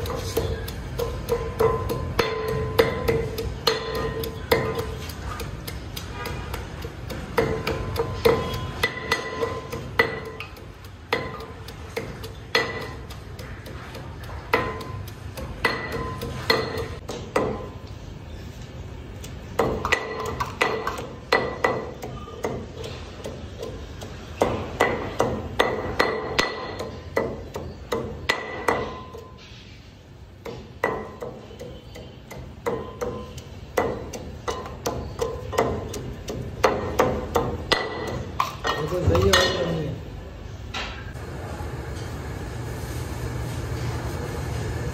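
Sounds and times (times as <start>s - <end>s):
metal pestle pounding in mortar: 0.0s - 17.9s, 19.2s - 29.4s, 30.4s - 39.8s.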